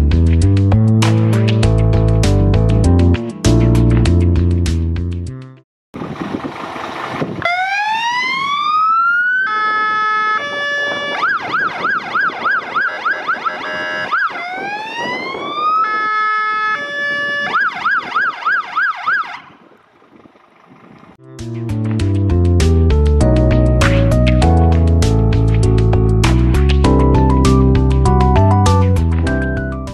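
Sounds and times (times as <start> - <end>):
fire engine siren: 6.9 - 19.8.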